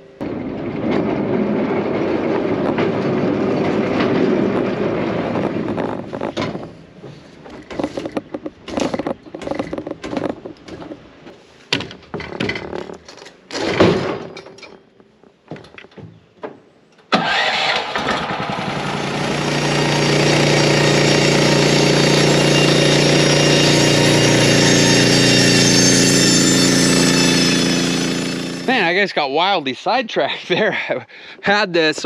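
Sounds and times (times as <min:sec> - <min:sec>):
log knocking and scraping: 0:05.3 - 0:13.4
band saw cutting log: 0:17.1 - 0:28.9
sawmill engine running: 0:17.1 - 0:29.0.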